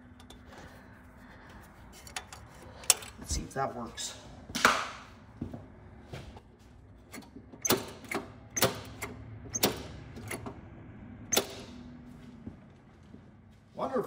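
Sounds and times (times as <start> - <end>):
metallic clicks of choke cable: 1.9 - 3.3.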